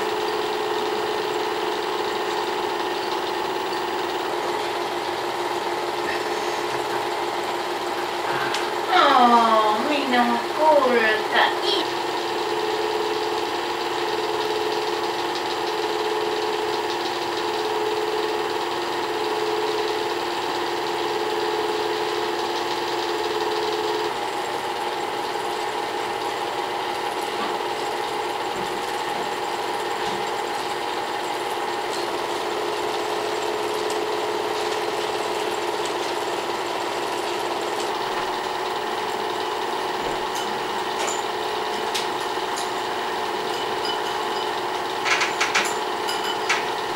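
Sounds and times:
film projector whirring: 0.0s - 46.9s.

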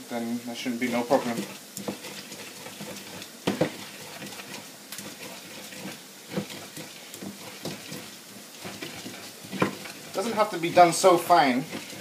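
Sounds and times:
wooden pestle grinding in bowl: 0.8s - 12.0s
pestle knocks: 3.4s - 3.9s.

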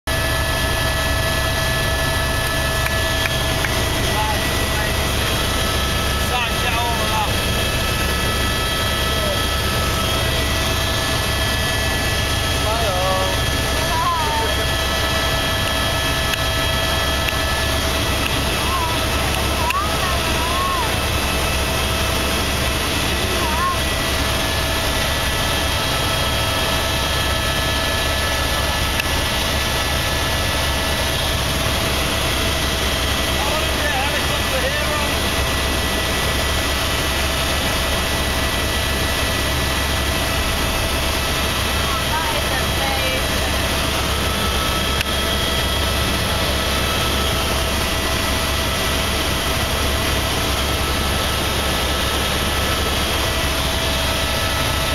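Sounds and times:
helicopter engine and rotor drone: 0.1s - 54.9s
high whine: 0.1s - 54.9s.

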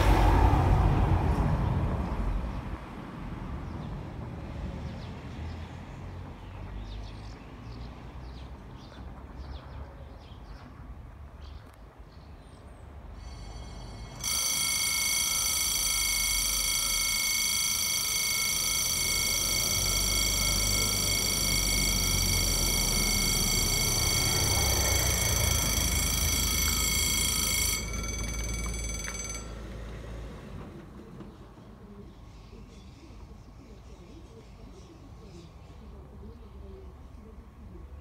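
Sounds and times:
car approaching: 0.0s - 9.3s, 13.1s - 31.6s
electronic warning bell ringing: 13.1s - 30.5s.

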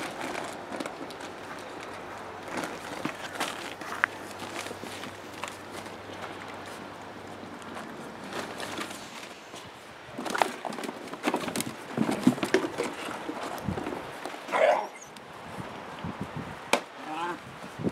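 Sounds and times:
rustling on plastic tarp: 0.0s - 14.2s
clattering in plastic pool: 10.1s - 14.3s.

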